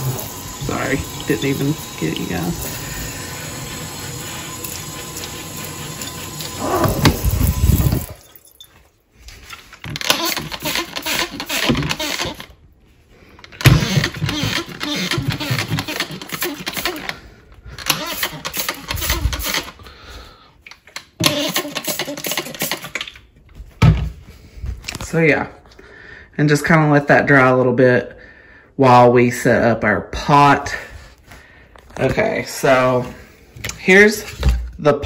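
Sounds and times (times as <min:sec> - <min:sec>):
sink sprayer hissing on steel sink: 0:00.0 - 0:08.1, 0:13.7 - 0:17.1, 0:21.2 - 0:23.0
spray bottle squirts: 0:21.2 - 0:23.2.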